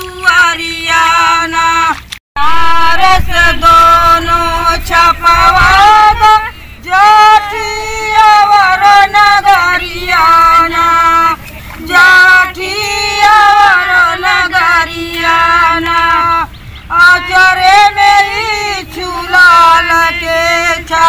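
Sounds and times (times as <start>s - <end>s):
women singing unaccompanied: 0.0s - 21.0s.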